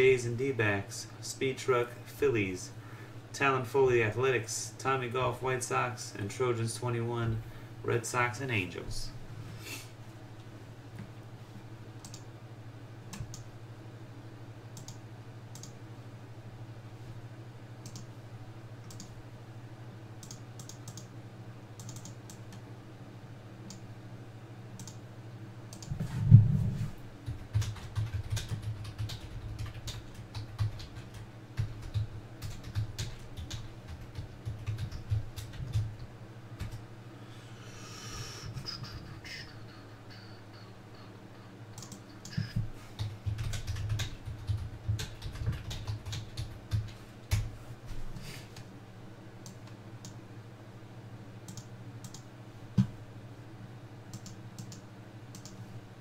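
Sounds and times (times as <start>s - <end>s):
steady low hum: 0.0s - 56.0s
keyboard typing and clicking: 17.8s - 18.1s, 18.8s - 19.1s, 20.2s - 21.1s, 21.8s - 22.5s, 27.2s - 35.9s, 41.7s - 47.5s, 51.5s - 52.2s, 54.1s - 55.6s.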